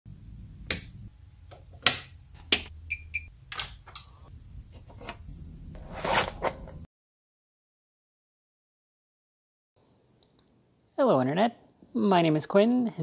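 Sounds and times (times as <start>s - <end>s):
power switch clicks: 0.6s - 0.9s.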